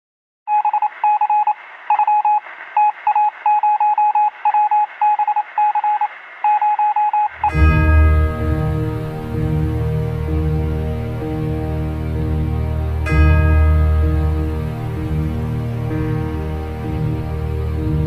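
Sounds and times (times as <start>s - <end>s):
rapid beeps like morse code: 0.5s - 7.6s
music with low bass: 7.4s - 18.0s.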